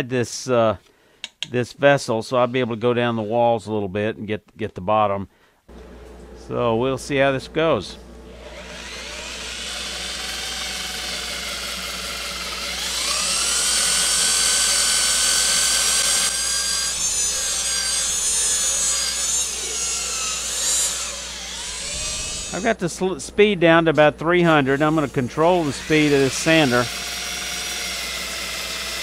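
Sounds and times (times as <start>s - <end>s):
drill motor whining while sanding wood: 8.4s - 22.7s, 24.4s - 29.0s.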